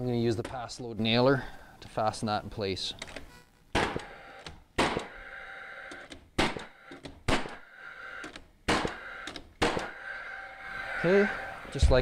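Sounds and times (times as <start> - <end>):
nail gun firing: 3.7 - 5.2, 6.0 - 7.7, 8.7 - 10.0
nail gun fan whirring: 3.8 - 10.9.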